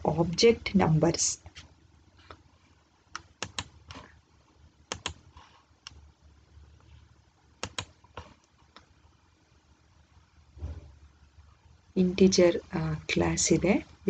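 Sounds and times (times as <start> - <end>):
sharp computer clicks: 3.1 - 4.0, 4.9 - 5.2, 7.6 - 8.0.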